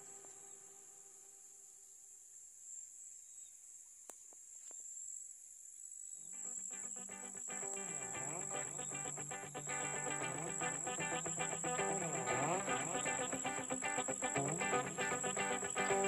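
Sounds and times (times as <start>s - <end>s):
insects chirring: 0.0s - 16.0s
background music: 7.4s - 16.0s.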